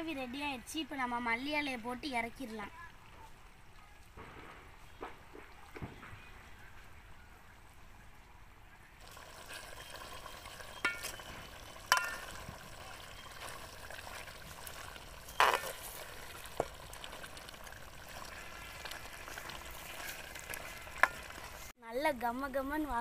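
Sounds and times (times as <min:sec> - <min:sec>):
gravy bubbling and sizzling in a pan: 0:09.0 - 0:21.8
metal ladle scraping a pan: 0:10.7 - 0:12.5, 0:15.2 - 0:17.4, 0:18.1 - 0:21.7.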